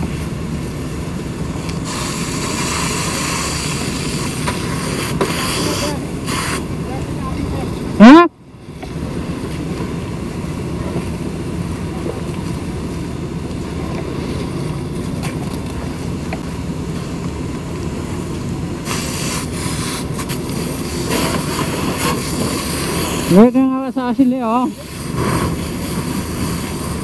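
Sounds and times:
fire hose spraying water: 0.0 - 27.0
low engine rumble: 0.0 - 27.0.

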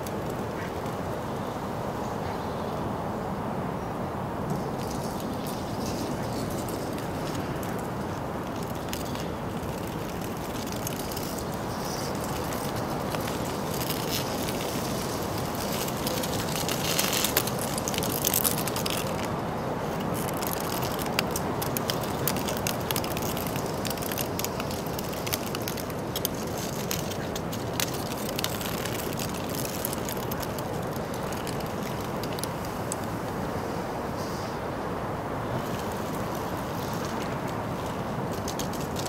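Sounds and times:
steady background hiss: 0.0 - 39.0.

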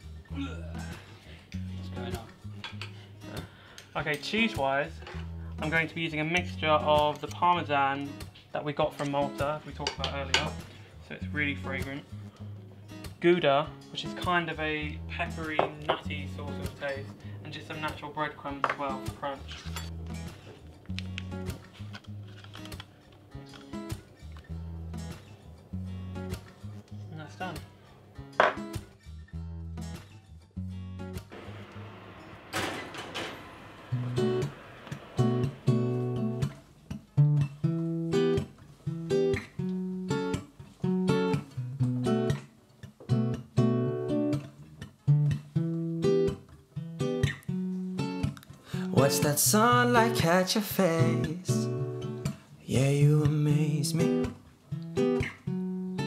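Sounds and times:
background music: 0.0 - 56.0
acoustic guitar strummed chords: 27.6 - 30.1, 30.7 - 56.0.

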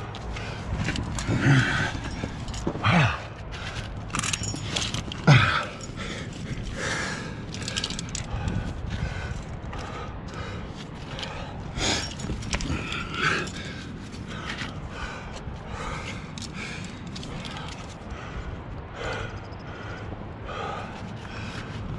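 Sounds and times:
heavy breathing: 0.0 - 21.9
grunts of effort: 1.0 - 8.6, 9.9 - 15.1.

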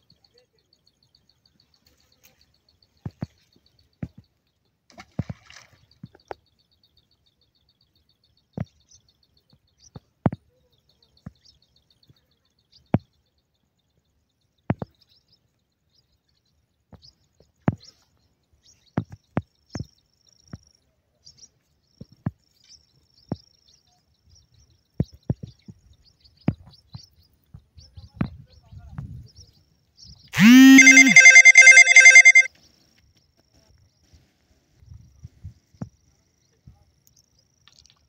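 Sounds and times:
fast high chirring trill: 30.4 - 32.5.

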